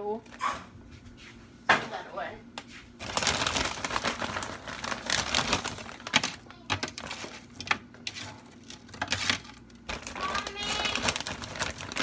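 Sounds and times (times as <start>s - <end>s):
frozen pieces tapping on tray: 3.0s - 12.0s
plastic bag crinkling: 3.0s - 12.0s.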